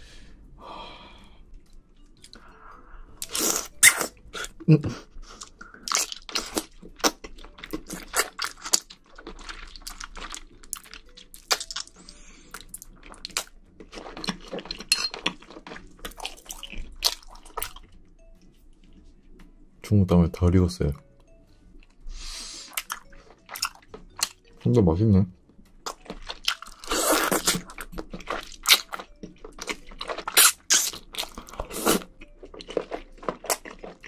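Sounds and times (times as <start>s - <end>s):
wet chewing and mouth smacks: 5.3s - 18.0s, 22.7s - 24.5s, 25.8s - 34.0s.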